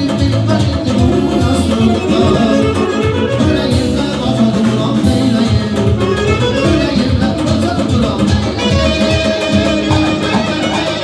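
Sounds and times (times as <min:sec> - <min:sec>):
accordion: 0:00.0 - 0:11.0
drum kit: 0:00.0 - 0:11.0
person singing into microphone: 0:00.0 - 0:11.0
clarinet: 0:01.0 - 0:04.3, 0:05.9 - 0:07.3, 0:08.6 - 0:11.0
plucked long-necked lute: 0:09.9 - 0:11.0.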